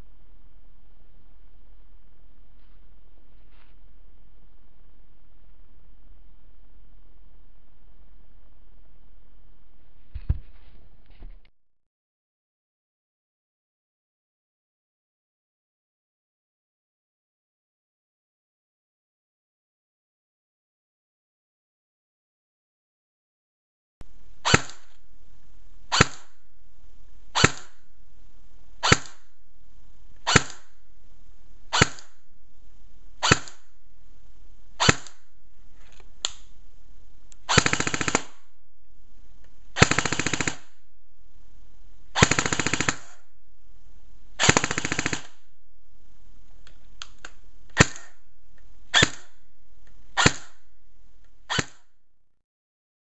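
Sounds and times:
airsoft gun firing: 24.4s - 25.0s, 25.9s - 26.4s, 27.3s - 27.9s, 28.8s - 29.4s, 30.2s - 30.8s, 31.7s - 32.2s, 33.2s - 33.7s, 34.8s - 35.3s, 37.4s - 38.6s, 39.8s - 40.8s, 42.1s - 43.3s, 44.4s - 45.5s, 47.7s - 48.3s, 48.9s - 49.5s, 50.1s - 50.7s, 51.5s - 51.9s.

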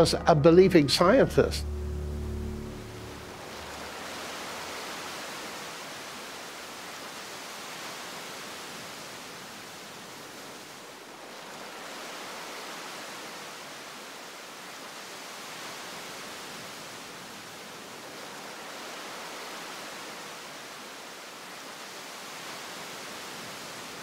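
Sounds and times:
hiss-like rushing noise: 1.6s - 10.0s.

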